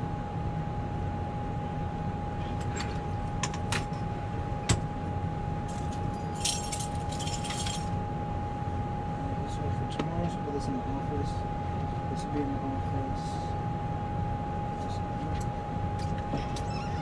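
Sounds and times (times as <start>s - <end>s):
faint constant whine: 0.0s - 17.0s
ventilation hum: 0.0s - 17.0s
light metal jingling: 5.7s - 7.9s.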